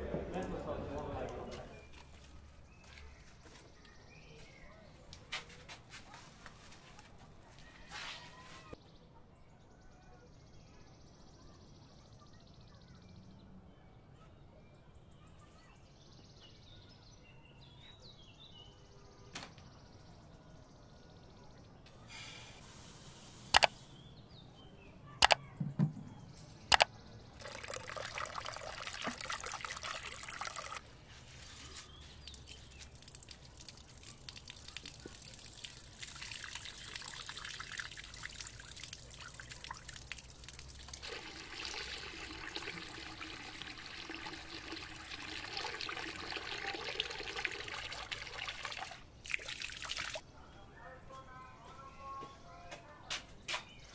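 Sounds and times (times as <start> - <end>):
tap water running into bowl: 27.4 - 30.8, 32.4 - 50.2.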